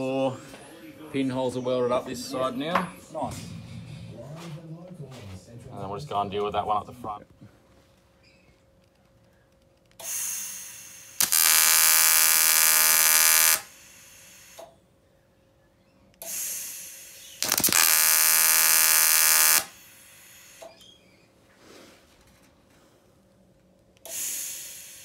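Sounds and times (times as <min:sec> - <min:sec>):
welding arc buzzing: 0:10.0 - 0:14.6, 0:17.4 - 0:20.6
gas hiss: 0:13.4 - 0:14.7, 0:16.2 - 0:18.0, 0:19.5 - 0:20.8, 0:24.0 - 0:25.0.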